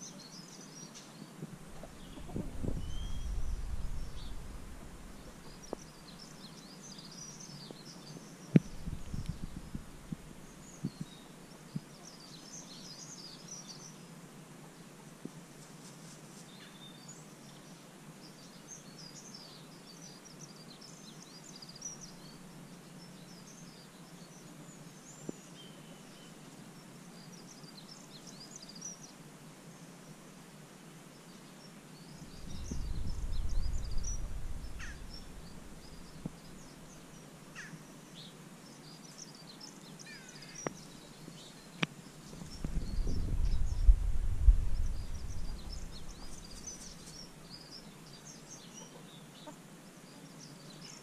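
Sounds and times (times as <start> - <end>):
songbirds chirping: 0.0 - 51.0
low rumble: 2.2 - 5.7, 32.4 - 36.2, 42.5 - 46.4
faint ticks: 41.7 - 42.8.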